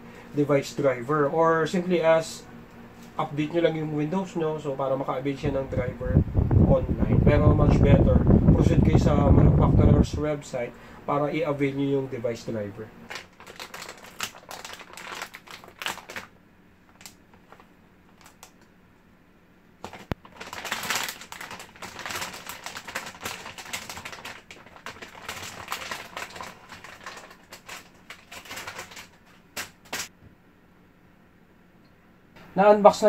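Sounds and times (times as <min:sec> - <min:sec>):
plastic bag crinkling: 0:13.0 - 0:18.6, 0:19.8 - 0:30.1.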